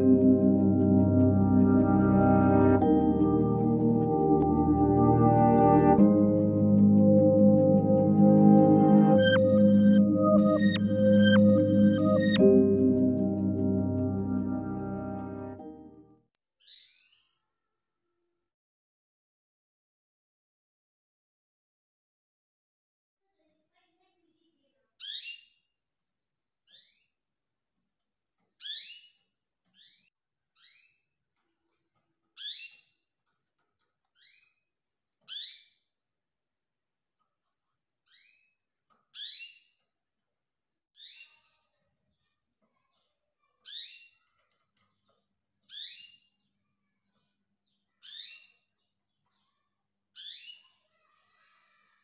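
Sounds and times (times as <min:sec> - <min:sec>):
canary chirp sweeping up and down: 0:25.0 - 0:25.6, 0:35.3 - 0:35.8, 0:38.1 - 0:38.6, 0:39.2 - 0:39.8, 0:41.0 - 0:41.6, 0:43.6 - 0:44.2, 0:45.7 - 0:46.4, 0:48.0 - 0:48.7, 0:50.2 - 0:50.8.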